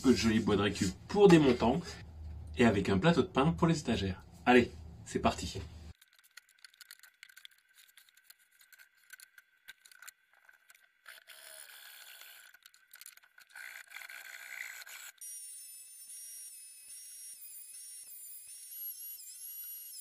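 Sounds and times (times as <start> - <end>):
high wavering whistle-like tone: 15.2 - 20.0.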